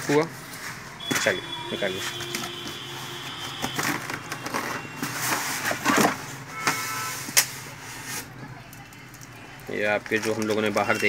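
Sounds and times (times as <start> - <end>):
cardboard box scraping and creaking: 0.1 - 8.4.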